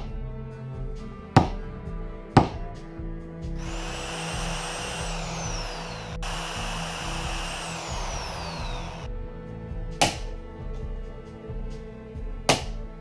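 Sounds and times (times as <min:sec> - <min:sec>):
background music: 0:00.0 - 0:13.0
electric drill drilling: 0:03.6 - 0:09.1
hammer striking steel punch: 0:10.0 - 0:10.3.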